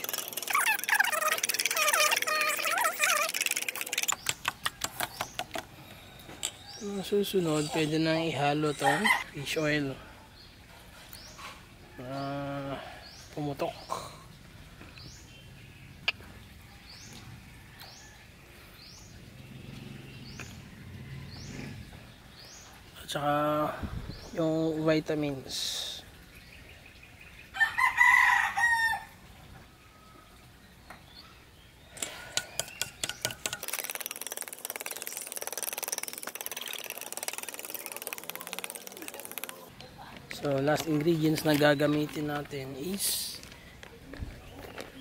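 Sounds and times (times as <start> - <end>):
fast buzzing rattle: 0.0 - 5.7, 32.0 - 39.7
bird rising chirp: 31.0 - 39.7.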